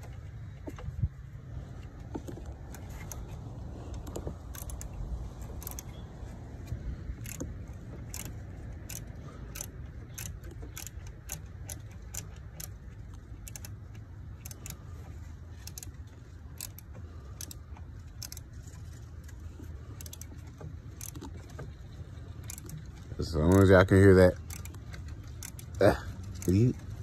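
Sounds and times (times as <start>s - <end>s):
low steady rumble: 0.0s - 27.0s
socket ratchet clicking: 4.0s - 6.0s, 6.7s - 14.8s, 15.5s - 18.5s, 22.4s - 27.0s.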